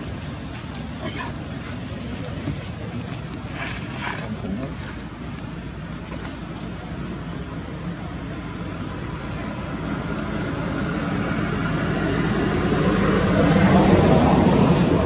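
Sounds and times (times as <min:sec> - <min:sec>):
vehicle passing by: 0:09.1 - 0:15.0.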